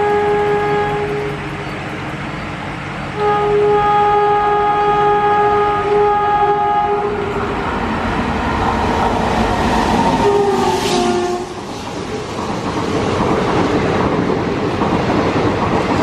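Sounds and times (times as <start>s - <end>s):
locomotive horn blast: 0.0s - 1.6s, 3.2s - 7.5s, 10.2s - 11.7s
train rumble and rail noise: 0.0s - 16.0s.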